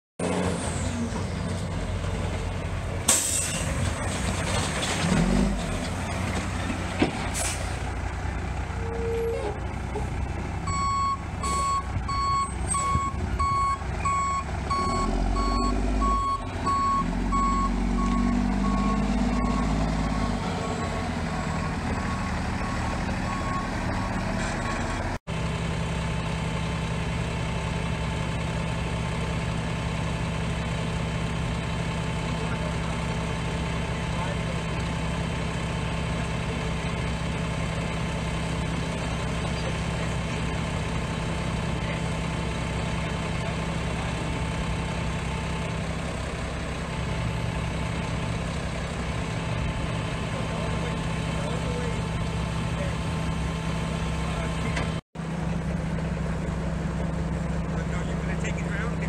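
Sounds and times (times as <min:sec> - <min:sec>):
diesel truck engine running: 0:00.2 - 0:59.0
air brake hisses: 0:07.3 - 0:07.8
backup alarm beeping: 0:10.7 - 0:20.8.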